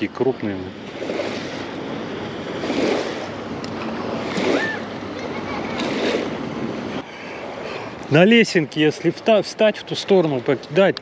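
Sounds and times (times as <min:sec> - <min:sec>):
small waves lapping on shore: 0:00.0 - 0:11.0
wind on microphone: 0:00.7 - 0:08.0.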